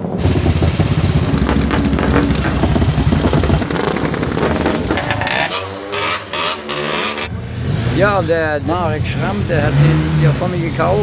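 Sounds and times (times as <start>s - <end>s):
wind buffeting microphone: 0.0s - 5.4s
racing engine at high revs: 0.2s - 11.0s.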